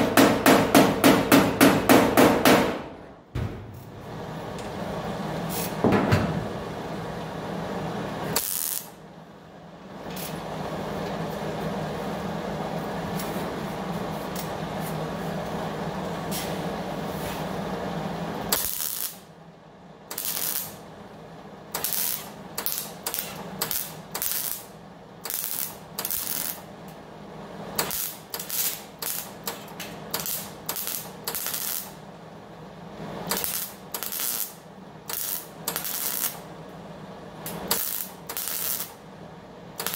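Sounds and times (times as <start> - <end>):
welder steady hissing: 8.3 - 9.0, 18.4 - 19.3, 20.1 - 20.9, 21.7 - 26.7, 27.7 - 32.0, 33.2 - 36.5, 37.5 - 39.0
welder short bursts: 37.7 - 38.9.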